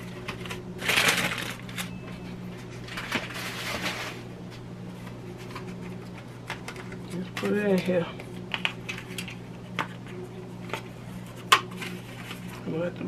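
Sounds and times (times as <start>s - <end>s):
foil tin crinkling: 0.0s - 2.0s
steady low hum: 0.0s - 13.0s.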